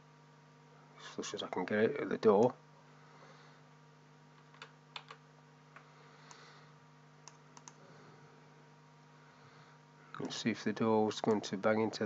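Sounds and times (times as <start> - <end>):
faint steady hum: 0.0 - 12.0
computer clicks: 7.2 - 7.8.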